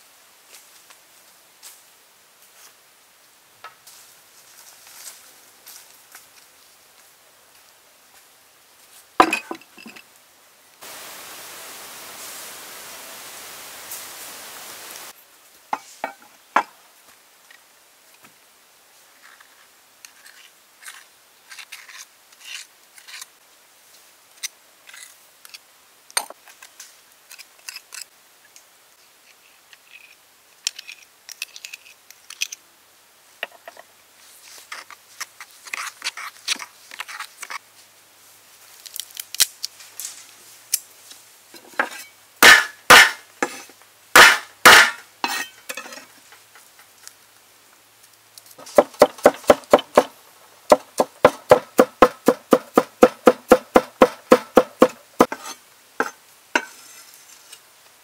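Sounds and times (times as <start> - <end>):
chopping on cutting board: 48.7 - 50.1, 50.7 - 55.4.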